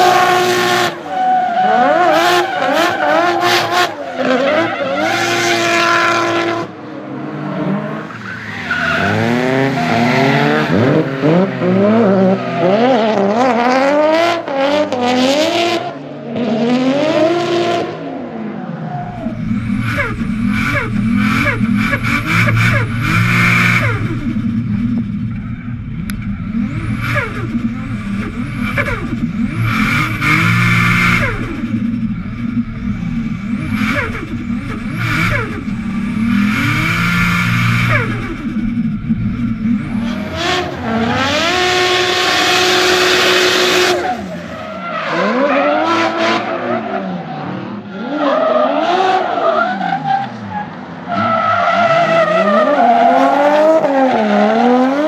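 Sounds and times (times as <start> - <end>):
car engine revving: 0.0 - 55.0
tyre screech: 8.0 - 10.8.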